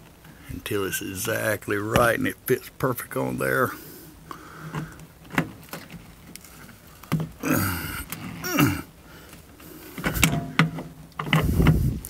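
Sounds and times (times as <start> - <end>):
person grunting: 7.4 - 8.9.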